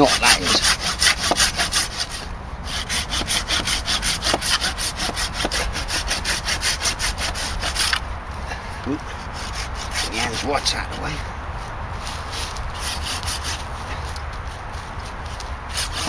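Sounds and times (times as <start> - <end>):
pull saw cutting wood: 0.0 - 8.0, 9.3 - 10.7, 12.8 - 13.6, 15.7 - 16.0.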